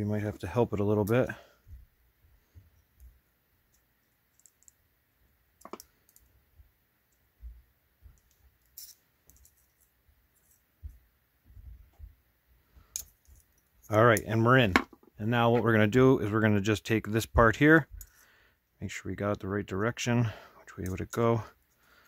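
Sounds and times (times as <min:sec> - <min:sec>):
small metal clicks: 0:03.7 - 0:04.8, 0:08.2 - 0:10.6, 0:12.9 - 0:14.3.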